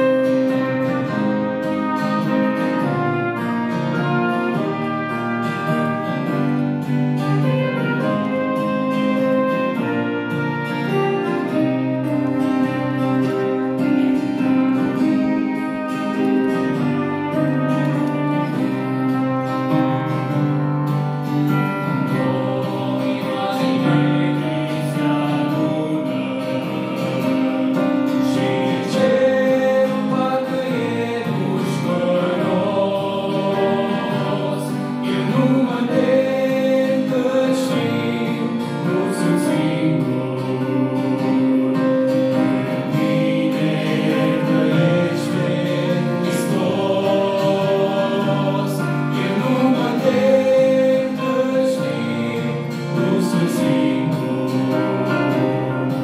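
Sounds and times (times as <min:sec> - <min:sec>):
male vocal group singing a hymn: 0:00.0 - 0:06.2, 0:21.5 - 0:56.0
acoustic guitar: 0:00.0 - 0:56.0.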